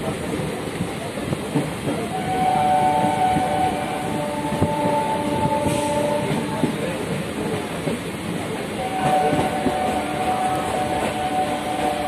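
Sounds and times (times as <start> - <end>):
train rumbling and knocking on track: 0.0 - 12.0
train horn two-note blast: 2.1 - 6.5, 8.8 - 12.0.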